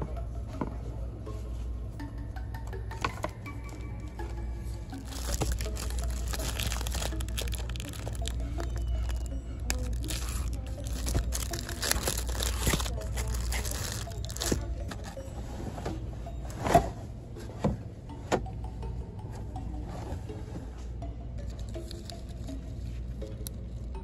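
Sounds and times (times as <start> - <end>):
cellophane crinkling: 4.9 - 15.2.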